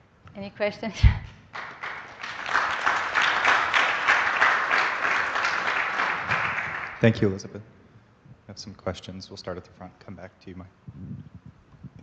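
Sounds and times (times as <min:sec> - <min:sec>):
audience applauding: 0:01.5 - 0:07.4.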